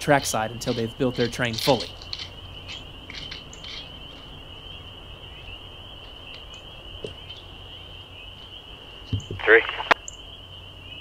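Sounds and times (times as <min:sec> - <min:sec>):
frogs calling: 0:00.0 - 0:11.0.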